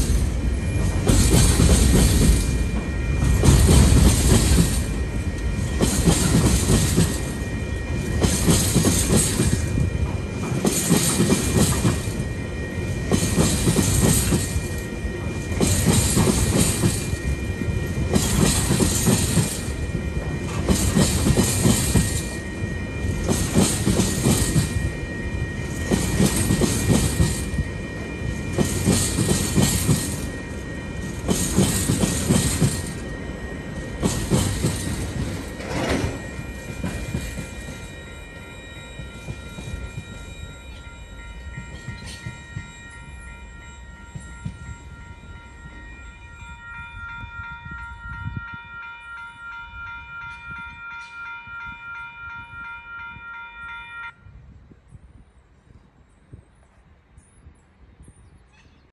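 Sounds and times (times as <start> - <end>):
train wheels rumbling and clattering: 0.0 - 45.9
level crossing warning bell: 0.0 - 54.5.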